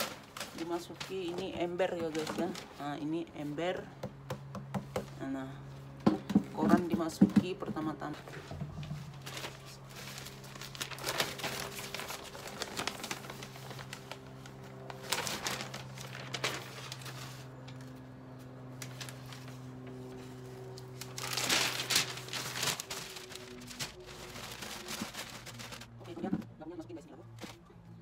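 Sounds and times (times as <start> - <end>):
newspaper rustling and crinkling: 0.0 - 3.6, 8.4 - 26.4, 27.3 - 27.7.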